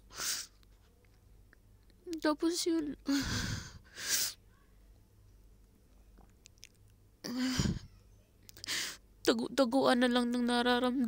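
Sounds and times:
woman sniffling: 0:00.0 - 0:00.6, 0:03.1 - 0:04.4, 0:07.3 - 0:07.9, 0:08.6 - 0:09.0
woman sighing: 0:03.1 - 0:04.3, 0:07.3 - 0:07.9.

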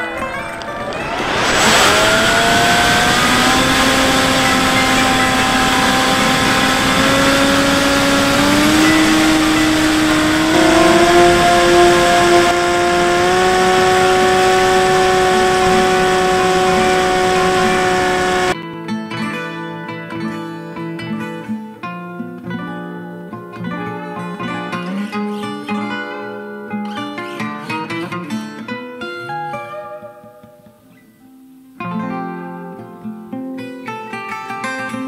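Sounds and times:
electric motor and propeller whine: 0:00.0 - 0:18.6
wind rush: 0:00.0 - 0:18.6
acoustic guitar music: 0:18.6 - 0:35.0.

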